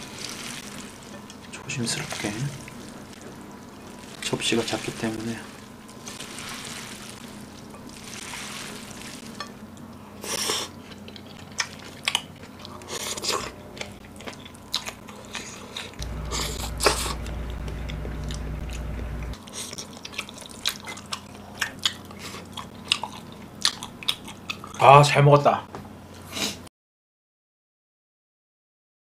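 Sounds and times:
wet squishing of salad: 0:00.0 - 0:09.6
low steady hum: 0:00.0 - 0:19.4
chewing and crunching: 0:05.5 - 0:24.8.

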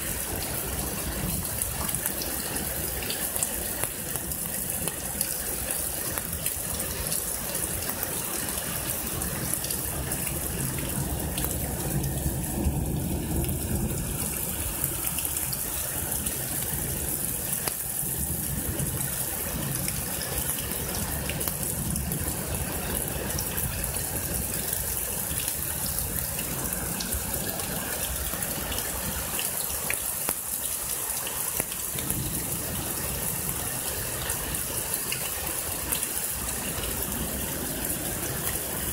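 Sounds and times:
heavy rain pouring: 0:00.0 - 0:38.9
water gushing over street: 0:00.0 - 0:38.9.

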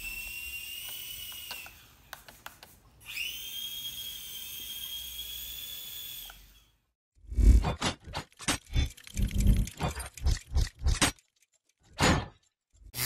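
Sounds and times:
small electric motor whining: 0:00.0 - 0:02.0, 0:03.0 - 0:06.8.

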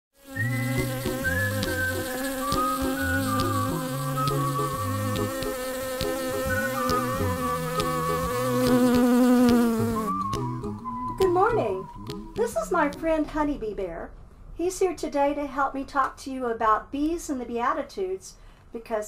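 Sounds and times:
bee buzzing: 0:00.2 - 0:13.1
light background music: 0:00.8 - 0:13.8.

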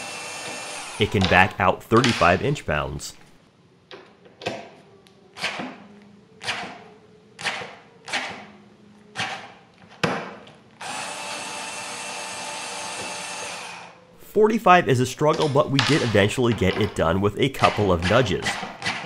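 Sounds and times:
electric screwdriver motor: 0:00.0 - 0:01.0, 0:10.8 - 0:13.9.

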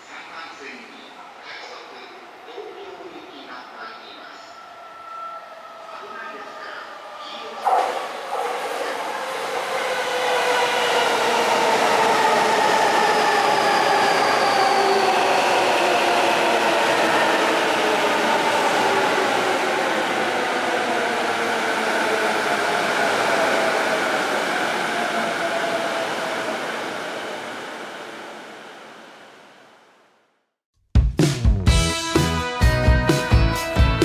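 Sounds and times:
train rushing past: 0:00.6 - 0:30.0
train whining tones: 0:02.5 - 0:29.8.

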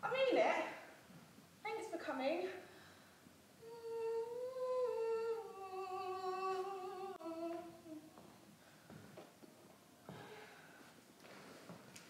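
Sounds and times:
woman humming slow tune: 0:03.6 - 0:08.3.

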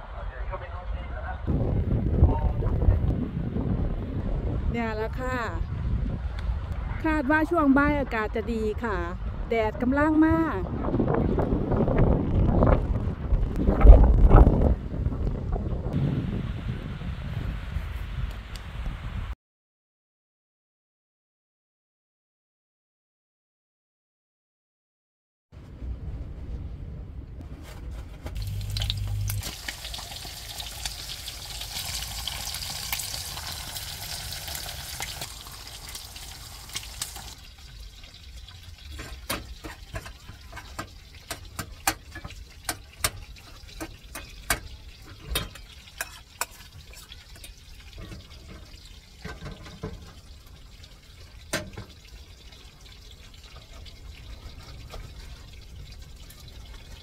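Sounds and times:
food sizzling in frying pans: 0:28.4 - 0:55.9.

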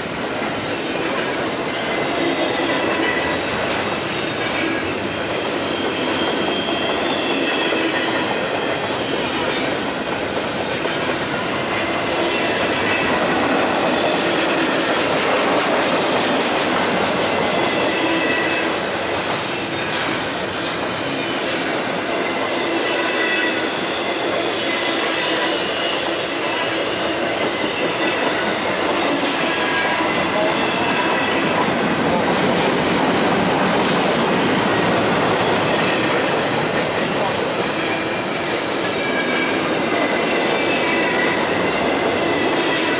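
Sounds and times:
steel wheels rolling on rail: 0:00.0 - 0:42.9
high wheel squeals: 0:01.8 - 0:11.0, 0:17.3 - 0:31.7, 0:35.4 - 0:42.9.

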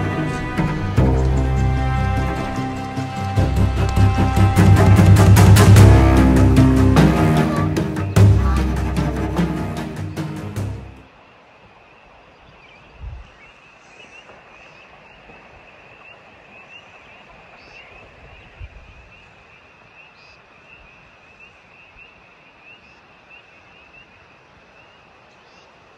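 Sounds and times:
music: 0:00.0 - 0:11.0.

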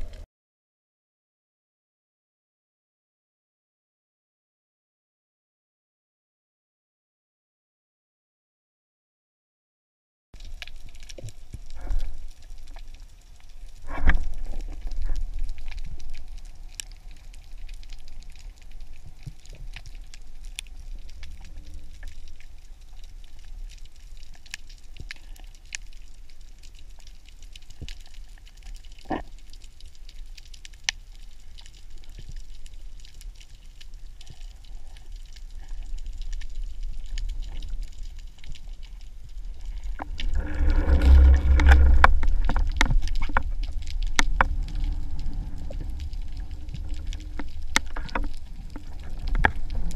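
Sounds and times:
low rumble of moving water: 0:10.4 - 0:49.9
underwater crackle of fine clicks: 0:10.4 - 0:49.9.

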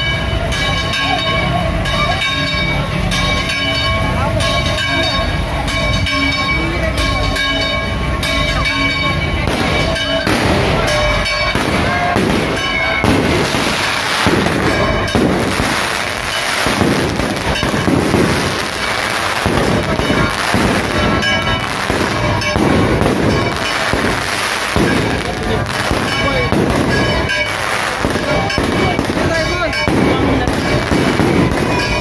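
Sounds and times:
fireworks launching and bursting: 0:09.4 - 0:32.0.

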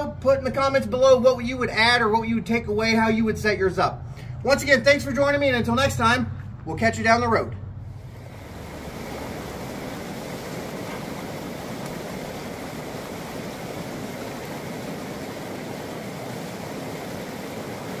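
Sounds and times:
stream flowing over rocks: 0:08.1 - 0:18.0.

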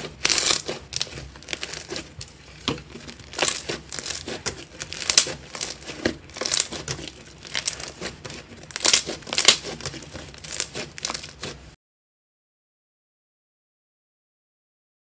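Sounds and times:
slime squelching by hand: 0:00.0 - 0:11.8.

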